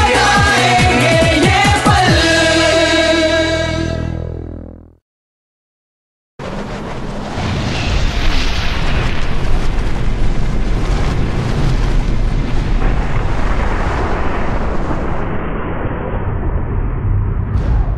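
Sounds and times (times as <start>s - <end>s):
explosion rush with deep bass: 6.4s - 17.9s.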